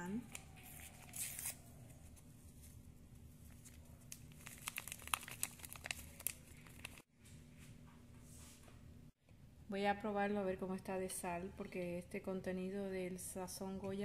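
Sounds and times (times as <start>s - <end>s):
foil packet crinkling and tearing: 3.5s - 7.1s.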